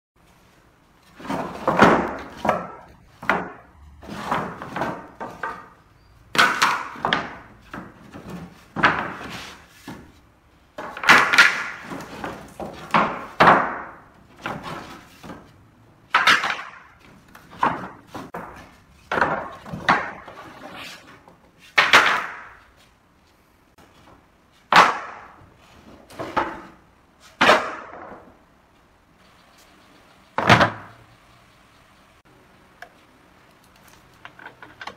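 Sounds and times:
wooden boards clattering on concrete: 1.0 - 22.9, 23.8 - 28.4, 30.4 - 31.0.

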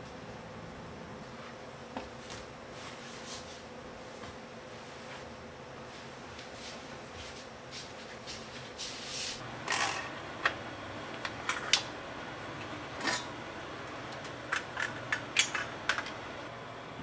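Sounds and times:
short hissing: 8.8 - 9.4.

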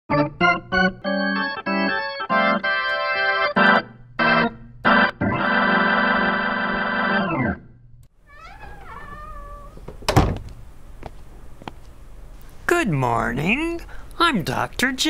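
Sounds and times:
organ chords: 0.1 - 7.9.

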